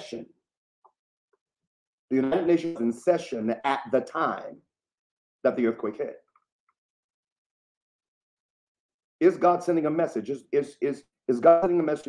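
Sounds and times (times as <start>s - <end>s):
man's voice: 2.1s - 4.1s, 5.5s - 6.1s, 9.2s - 12.0s.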